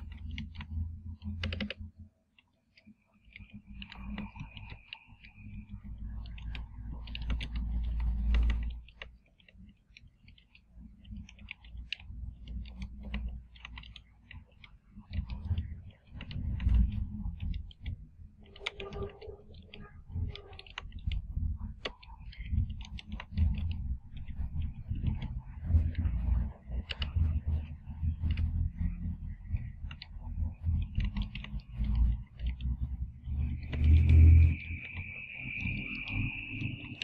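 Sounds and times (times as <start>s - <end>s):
keyboard typing clicks: 0.0s - 37.0s
low background rumble: 0.0s - 37.0s.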